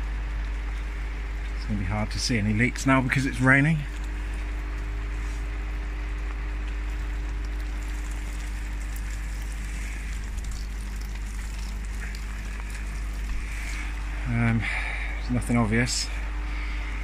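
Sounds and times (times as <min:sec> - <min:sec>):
faint steady hum: 0:00.0 - 0:17.0
rain hiss: 0:03.8 - 0:16.8.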